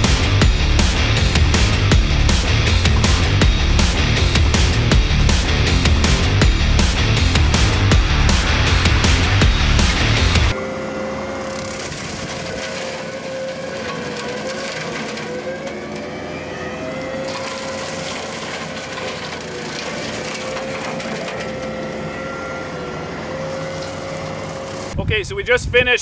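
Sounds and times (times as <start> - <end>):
brush mower whine: 0.0 - 25.0
wood crackling and splintering: 8.1 - 25.0.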